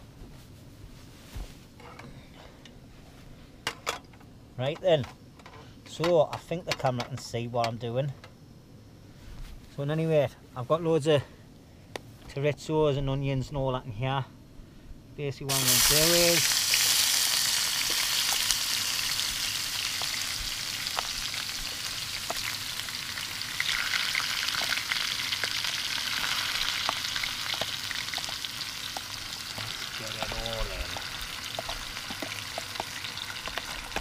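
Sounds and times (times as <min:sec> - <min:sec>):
food sizzling in a pan: 0:15.5 - 0:34.0.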